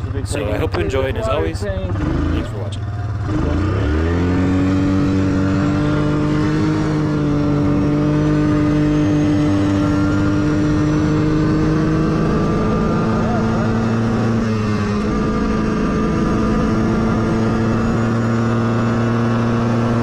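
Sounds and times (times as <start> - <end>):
vehicle engine revving: 0.0 - 20.0.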